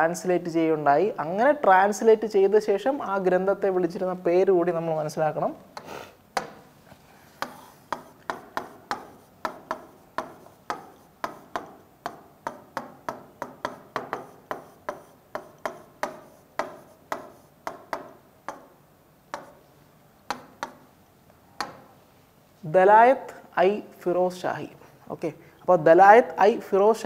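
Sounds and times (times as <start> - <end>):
marker clicking on whiteboard: 7.4 - 20.9, 21.6 - 21.9.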